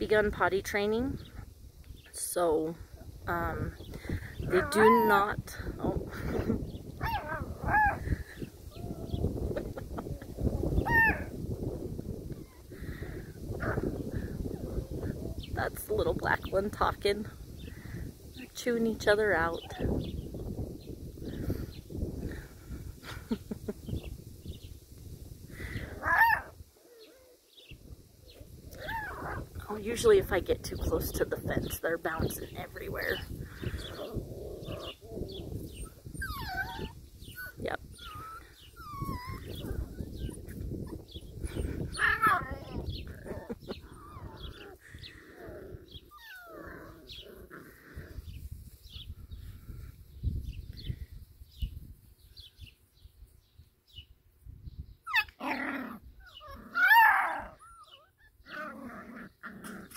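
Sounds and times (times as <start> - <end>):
puppies play-fighting: 3.9 - 11.4, 12.0 - 15.8, 25.5 - 30.2, 32.2 - 49.0, 55.0 - 59.9.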